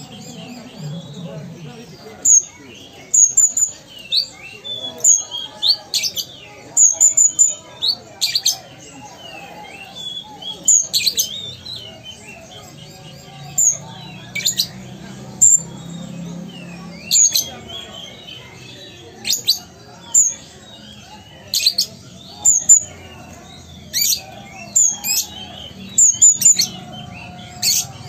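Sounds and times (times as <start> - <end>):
bird chirping and twittering: 0.0 - 28.0.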